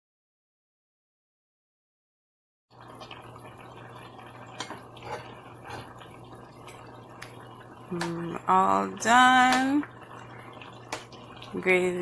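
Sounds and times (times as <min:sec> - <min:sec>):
stew bubbling in a pot: 0:02.7 - 0:12.0.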